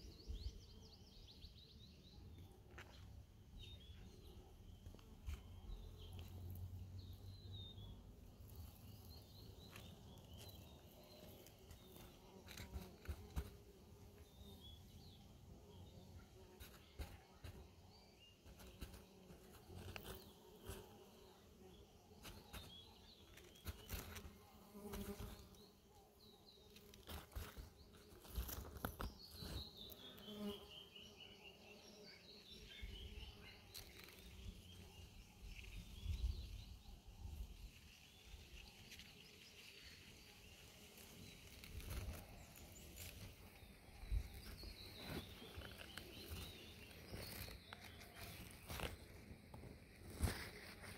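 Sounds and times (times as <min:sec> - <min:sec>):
bird chirping: 0:14.1 - 0:49.1
bee buzzing: 0:29.9 - 0:30.8.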